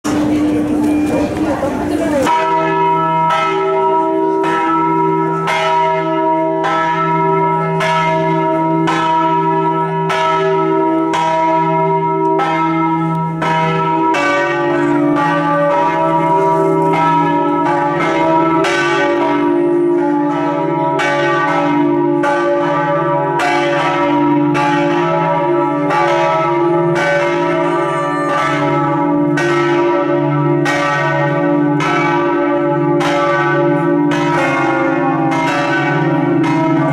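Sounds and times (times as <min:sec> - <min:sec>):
deeper bell tone: 0:00.0 - 0:05.8, 0:24.6 - 0:31.2
church bells ringing: 0:00.0 - 0:36.9.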